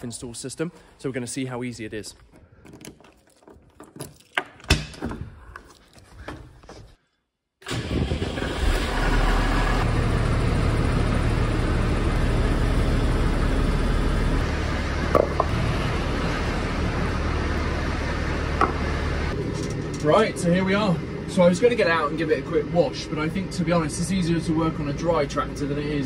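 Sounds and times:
diesel engine running: 7.7 - 26.0.

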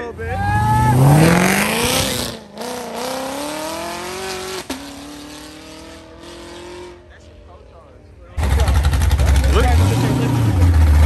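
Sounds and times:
car engine accelerating: 0.5 - 7.4, 8.4 - 11.0.

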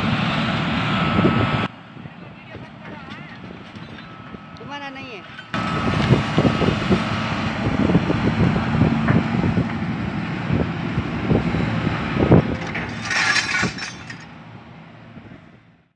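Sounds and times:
excavator diesel engine running: 0.0 - 15.5
scrap metal clattering onto pile: 12.5 - 14.4.

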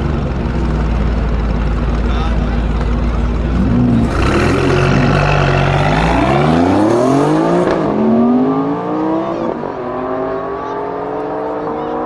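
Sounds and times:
car engines revving at launch: 3.4 - 12.0.

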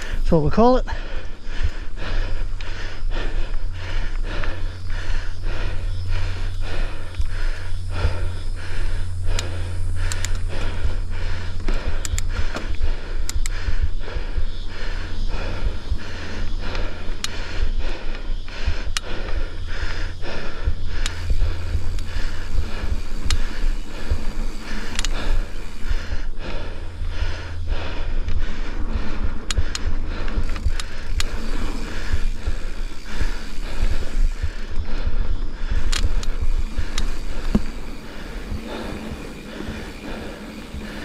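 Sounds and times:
person panting: 0.0 - 41.0
steady low rumble: 0.0 - 41.0
sharp clicks: 9.2 - 10.8, 11.6 - 13.8, 16.6 - 17.4, 18.0 - 20.0, 21.0 - 25.9, 28.2 - 34.8, 35.6 - 41.0.

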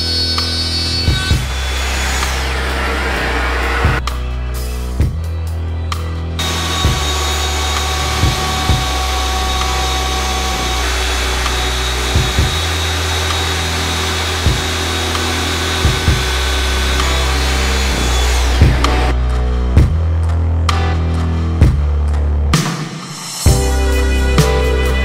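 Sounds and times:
router cutting wood: 0.0 - 4.1, 6.4 - 19.2
background music with bass and kick: 1.0 - 25.0.

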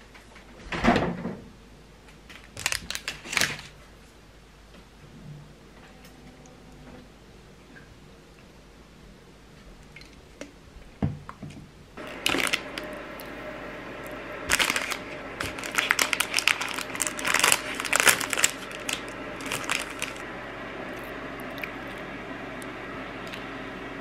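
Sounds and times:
plastic wrapper crinkling: 2.3 - 3.8, 12.0 - 13.4, 14.0 - 20.3.

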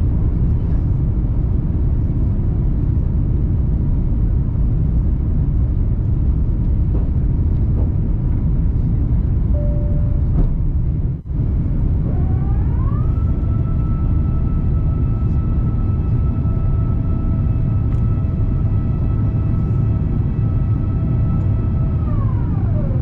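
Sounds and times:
airliner cabin rumble: 0.0 - 23.0
rising tone: 9.6 - 10.6.

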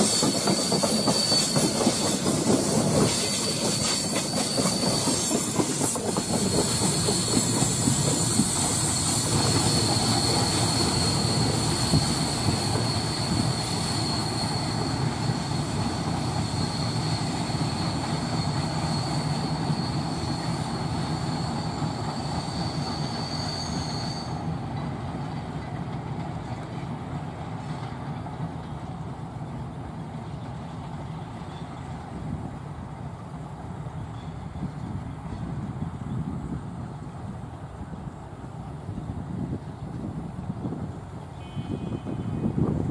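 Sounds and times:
high wheel squeal: 0.0 - 24.9
train wheels rumbling on rails: 0.0 - 42.9.

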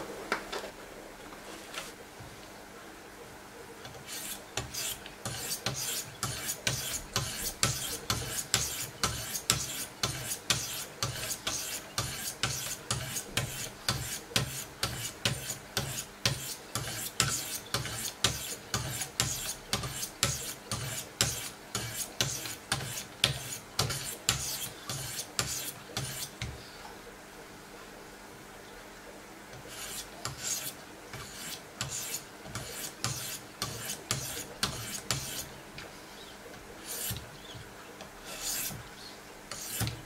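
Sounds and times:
stones rasping on knife blade: 4.0 - 26.4, 29.6 - 35.5, 36.8 - 37.2, 38.2 - 38.8, 39.5 - 40.0.

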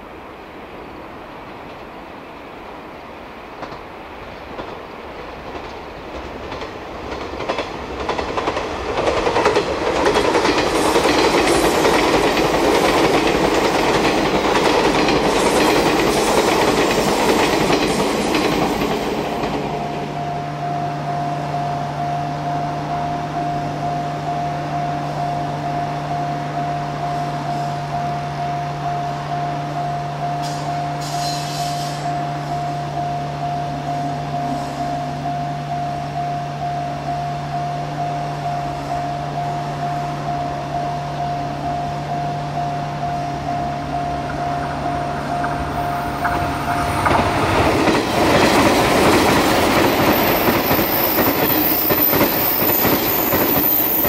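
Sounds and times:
train passing: 0.0 - 54.0
higher steady tone: 10.7 - 31.1, 32.0 - 54.0.

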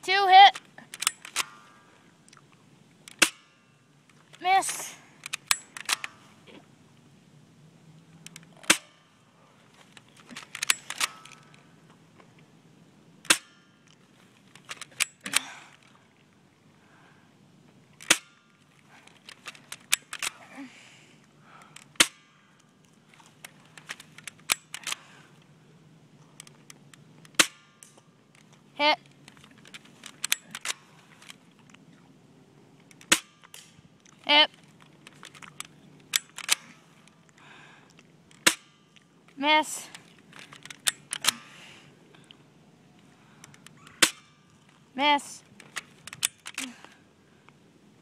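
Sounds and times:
airsoft rifle shots: 3.1 - 3.6, 8.6 - 9.1, 27.3 - 27.9, 38.4 - 38.8, 43.8 - 44.4
small clicks and rattles: 8.1 - 8.7, 9.7 - 12.5, 13.2 - 16.0, 18.0 - 20.4, 21.6 - 25.5, 26.2 - 31.9, 32.8 - 41.5, 45.4 - 47.0.

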